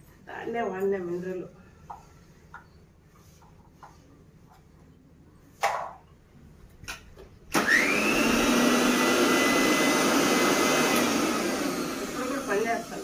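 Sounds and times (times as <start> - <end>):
mixer grinder motor whirring: 7.5 - 13.0.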